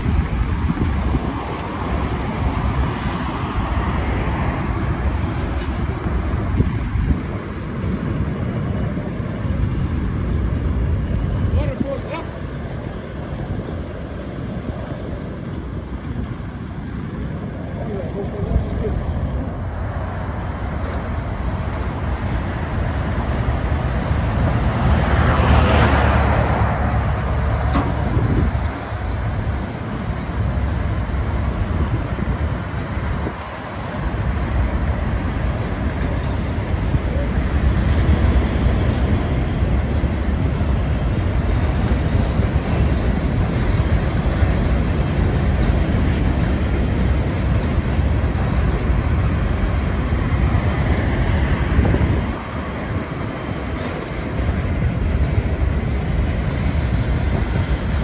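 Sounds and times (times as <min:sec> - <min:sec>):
lorry passing: 0:00.0 - 0:46.0
freight train rumbling past: 0:00.0 - 0:58.0.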